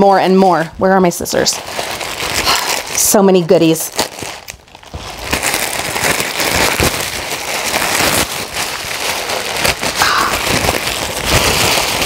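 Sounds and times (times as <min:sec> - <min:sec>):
plastic mailer bag crinkling: 0:00.0 - 0:12.0.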